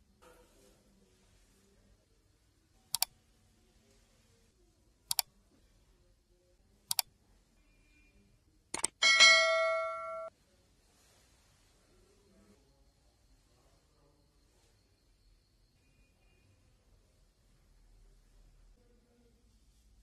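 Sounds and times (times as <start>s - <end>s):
mouse clicks: 2.9s - 3.1s, 5.1s - 5.3s, 6.9s - 7.1s, 8.8s - 9.0s
notification bell chime: 9.0s - 10.3s.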